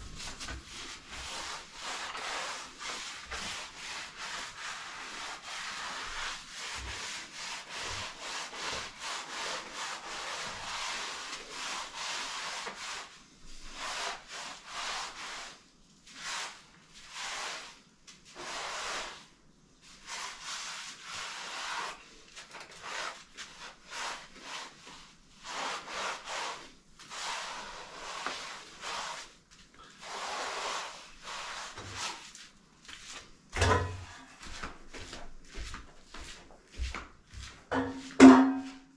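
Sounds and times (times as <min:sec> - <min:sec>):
sharp knock: 0:37.8 - 0:38.8.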